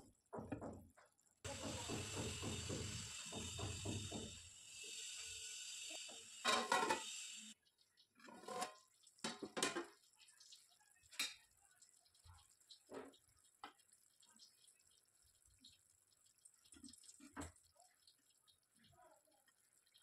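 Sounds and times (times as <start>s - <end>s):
drips: 0.3s - 20.0s
steady cooking hiss: 1.4s - 7.6s.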